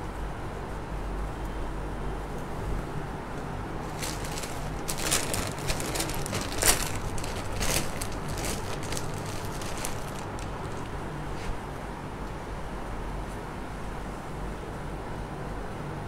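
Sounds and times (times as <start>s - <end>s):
low room hum: 0.0s - 16.0s
plastic packaging crinkling: 3.8s - 11.0s.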